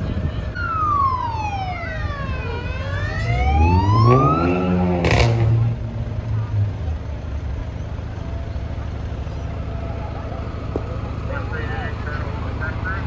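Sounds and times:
fire truck siren wailing: 0.0s - 5.4s
truck engine revving: 0.0s - 13.0s.

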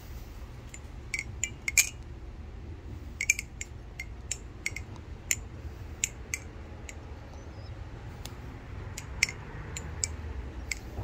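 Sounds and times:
butterfly knife metallic clicks: 0.7s - 2.1s, 3.2s - 5.4s.

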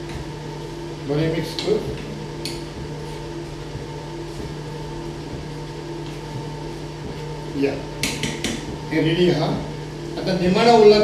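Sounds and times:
background hum: 0.0s - 11.0s
spoon knocking against bowl: 8.0s - 8.7s.

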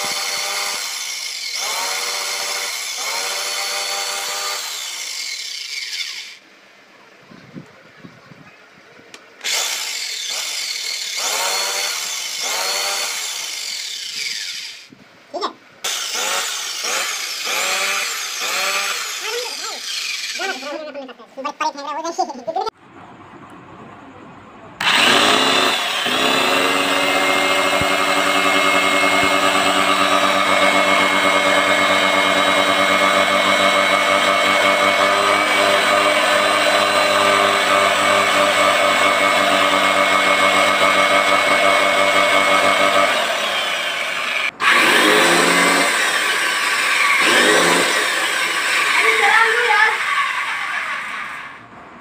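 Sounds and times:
electric chainsaw motor whining: 9.4s - 14.9s, 15.8s - 20.8s, 24.8s - 51.6s.

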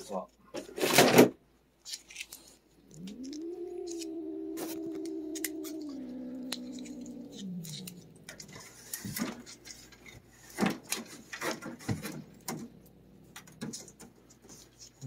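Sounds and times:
cat yowling: 2.8s - 9.2s.

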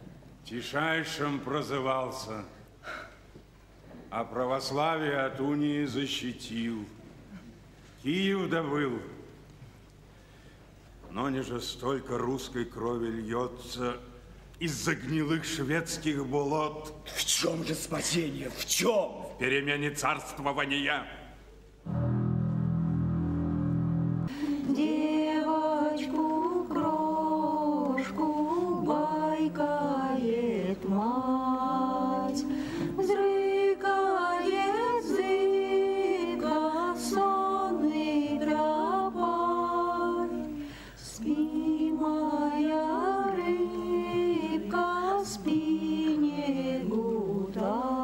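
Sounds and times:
choir singing unaccompanied: 21.9s - 48.0s.

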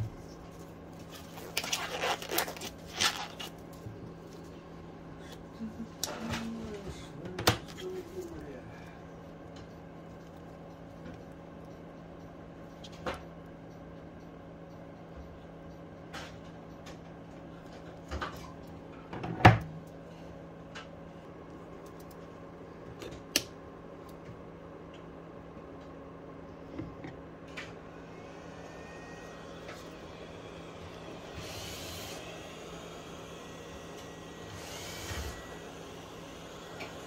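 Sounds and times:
low hum: 19.8s - 37.0s.

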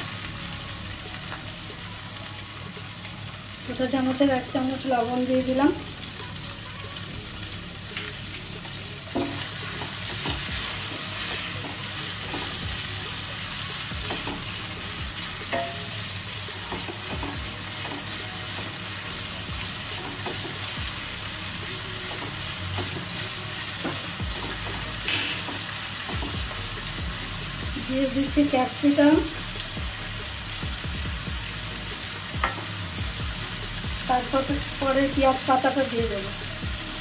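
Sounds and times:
food sizzling in hot oil: 0.0s - 37.0s.

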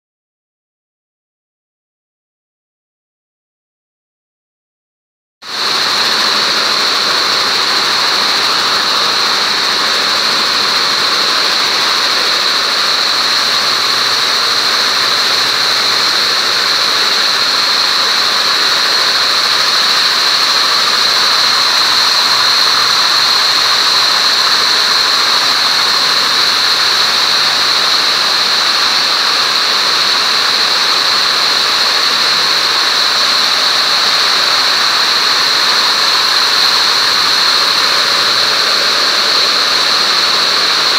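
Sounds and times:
high-pitched air jet hiss: 5.5s - 40.9s
weaving looms din: 5.5s - 40.9s.

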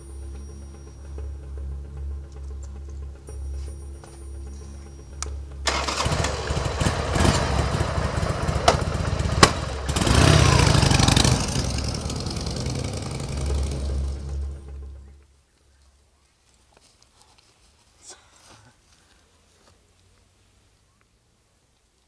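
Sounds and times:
motorcycle engine running: 4.4s - 15.2s.

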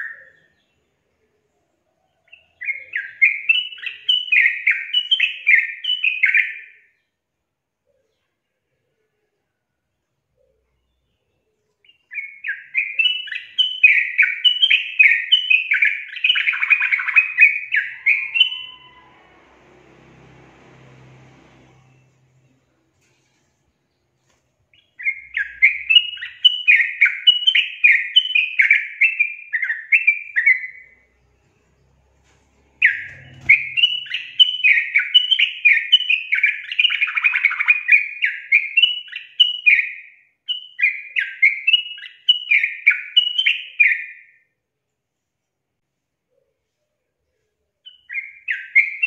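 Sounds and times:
bird chattering song: 11.8s - 19.1s, 24.7s - 31.0s, 32.8s - 44.1s.

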